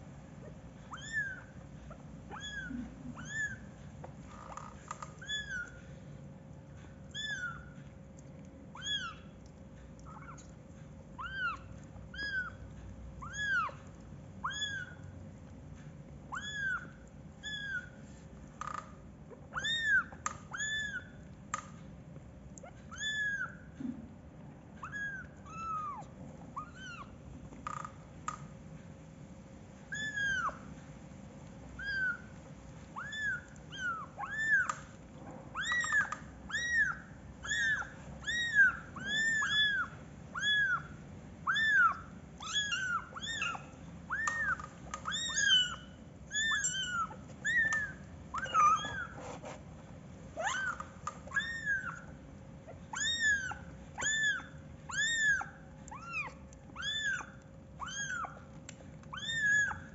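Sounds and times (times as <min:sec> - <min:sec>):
kittens mewing: 0:00.4 - 0:05.9, 0:32.9 - 0:49.6, 0:50.3 - 0:59.9.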